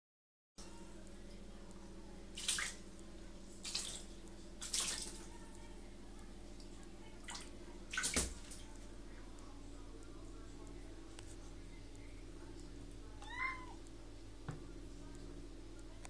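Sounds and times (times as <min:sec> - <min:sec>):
steady low hum: 0:00.6 - 0:16.0
cat paws splashing water: 0:02.4 - 0:02.8, 0:03.5 - 0:05.4, 0:06.5 - 0:09.0.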